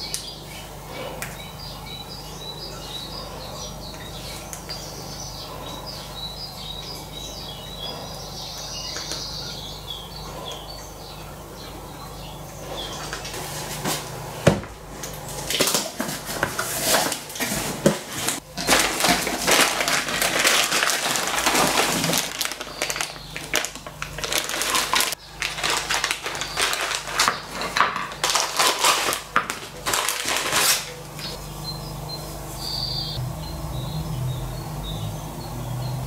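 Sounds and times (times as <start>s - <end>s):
plastic bags crinkling: 14.8s - 31.4s.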